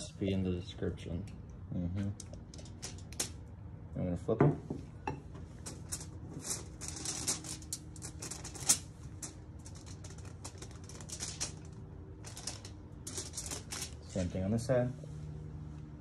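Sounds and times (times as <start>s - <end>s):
aluminium foil crinkling: 2.1s - 3.4s, 5.6s - 14.4s.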